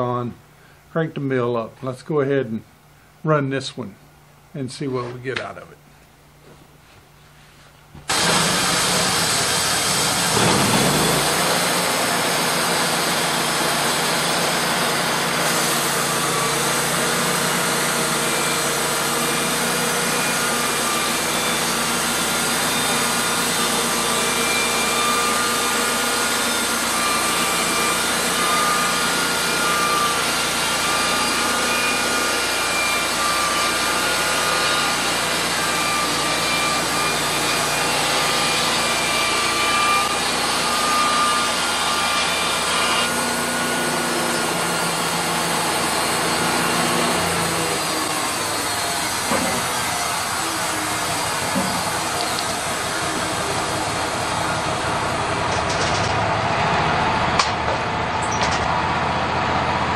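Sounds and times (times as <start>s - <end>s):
band sawmill engine drone: 35.4s - 59.9s.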